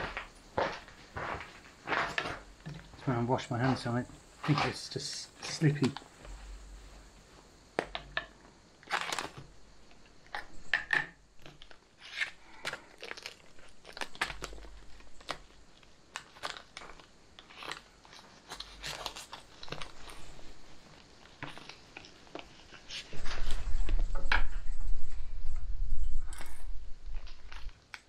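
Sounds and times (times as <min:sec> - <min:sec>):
meal pouch crinkling: 0:08.8 - 0:10.5, 0:11.4 - 0:23.7.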